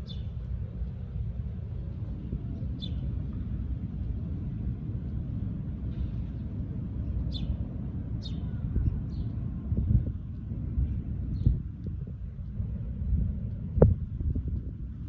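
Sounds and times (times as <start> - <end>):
bird chirping: 0.0 - 0.4, 2.6 - 3.2, 6.2 - 7.6, 8.2 - 9.4
low outdoor rumble: 0.0 - 15.0.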